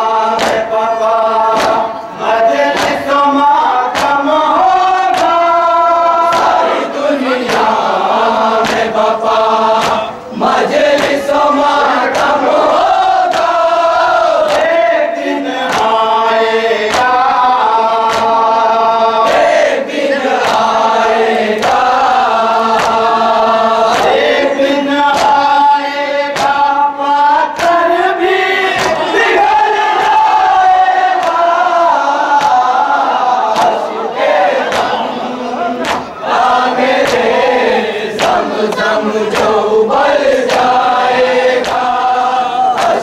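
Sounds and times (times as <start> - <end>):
group chanting a lament: 0.0 - 43.0
chest-beating slaps: 0.3 - 0.8, 1.4 - 5.6, 6.2 - 6.8, 7.4 - 7.9, 8.6 - 11.4, 12.0 - 12.5, 13.2 - 13.6, 14.4 - 14.9, 15.6 - 16.0, 16.8 - 17.3, 18.0 - 18.6, 20.3 - 20.9, 22.7 - 23.1, 25.0 - 25.5, 26.3 - 26.8, 27.4 - 27.9, 28.7 - 31.6, 32.2 - 37.5, 38.1 - 43.0.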